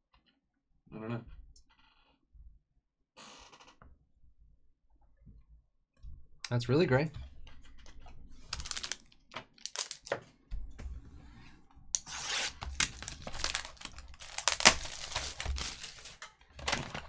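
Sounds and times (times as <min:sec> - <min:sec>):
shrink wrap tearing and crinkling: 0:08.4 - 0:10.1, 0:12.0 - 0:17.0.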